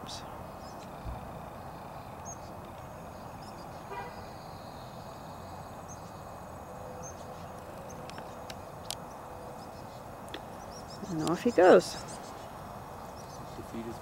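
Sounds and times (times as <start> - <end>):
distant traffic hum: 0.0 - 14.0
faint high bird chirps: 0.0 - 14.0.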